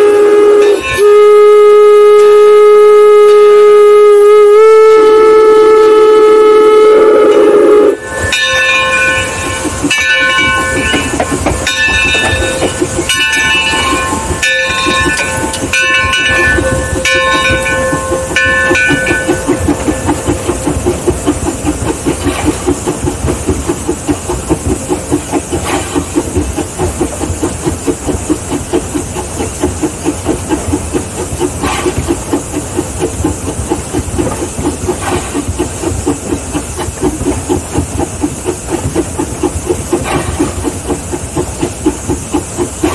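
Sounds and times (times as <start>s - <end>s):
locomotive bell ringing: 0.0s - 4.2s, 7.2s - 22.6s
steam engine hissing beat: 0.0s - 42.9s.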